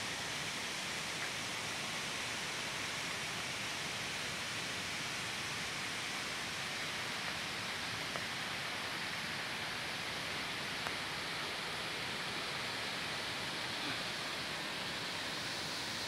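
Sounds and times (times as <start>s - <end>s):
rushing river water: 0.0s - 16.0s.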